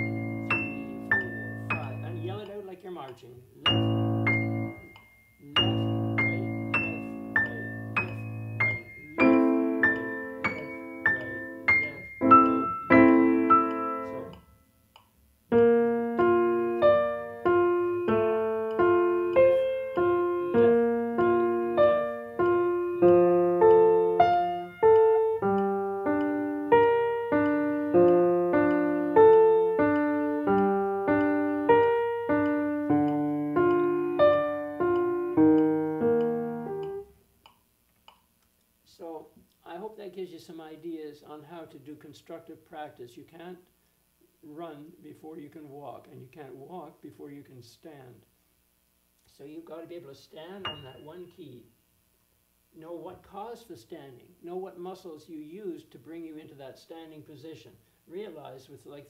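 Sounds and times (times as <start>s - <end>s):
grand piano notes and chords: 0.0s - 2.5s, 3.6s - 14.4s, 15.5s - 37.1s, 50.6s - 51.3s.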